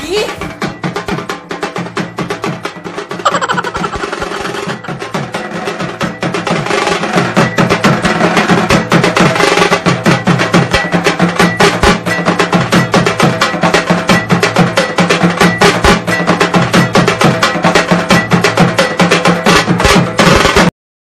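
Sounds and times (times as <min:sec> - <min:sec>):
fast drum beat music: 0:00.0 - 0:20.7.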